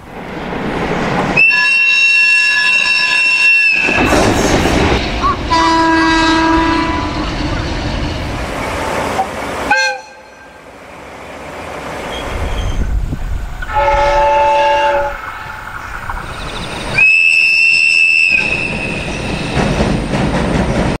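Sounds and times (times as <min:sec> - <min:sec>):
rumble of passing trains: 0:00.0 - 0:21.0
high-pitched train whistle: 0:01.4 - 0:04.0, 0:05.2 - 0:07.3, 0:09.7 - 0:10.6, 0:13.6 - 0:15.4, 0:17.0 - 0:19.5
train horn blasts: 0:01.4 - 0:04.0, 0:05.2 - 0:07.4, 0:09.7 - 0:10.6, 0:13.6 - 0:15.4, 0:17.0 - 0:19.0.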